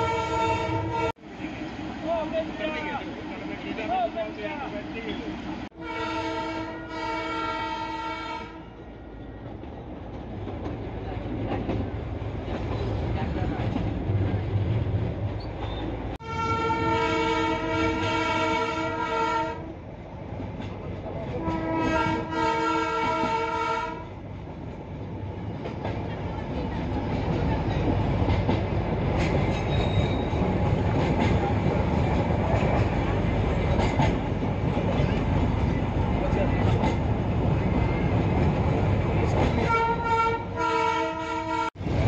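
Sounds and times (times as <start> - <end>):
train horn blasts: 0.0 - 1.2, 5.7 - 8.8, 16.2 - 19.7, 21.4 - 24.1, 39.6 - 41.8
train wheels rumbling on rails: 0.0 - 42.0.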